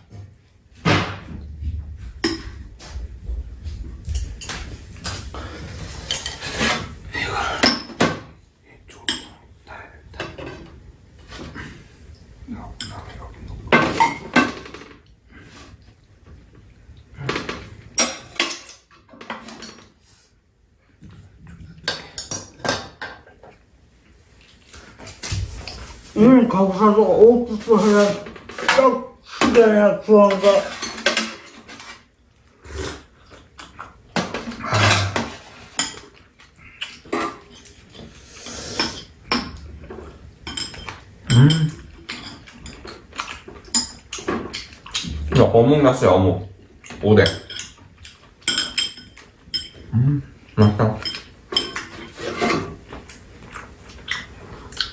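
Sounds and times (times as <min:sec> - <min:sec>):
dishes knocking: 0:00.8 - 0:03.4
chopsticks and spoon clinking: 0:02.2 - 0:02.6, 0:12.7 - 0:13.3, 0:34.7 - 0:36.2, 0:40.4 - 0:44.8, 0:47.2 - 0:49.9, 0:50.5 - 0:54.3
person humming mmm: 0:41.3 - 0:41.8, 0:49.9 - 0:50.3.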